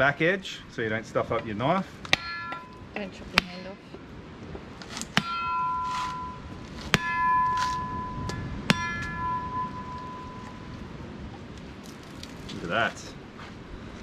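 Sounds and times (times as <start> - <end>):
steel blade ringing: 2.1 - 3.7, 5.2 - 10.9
knife striking coconut shell: 4.9 - 9.2.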